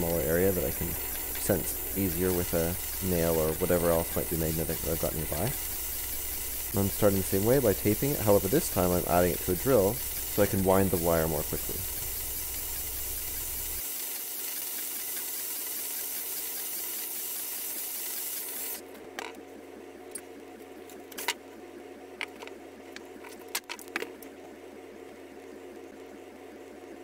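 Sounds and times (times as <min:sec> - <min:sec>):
cordless drill running: 0:00.0 - 0:18.8.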